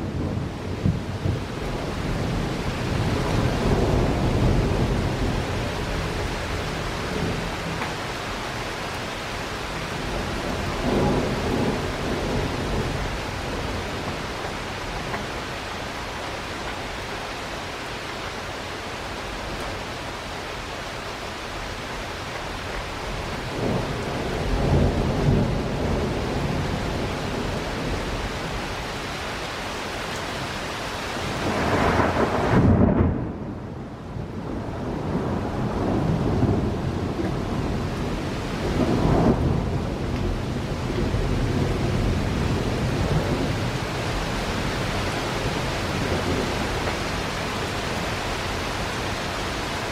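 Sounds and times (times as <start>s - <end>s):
steady rain: 0.0s - 49.9s
thunder rolling: 31.4s - 43.8s.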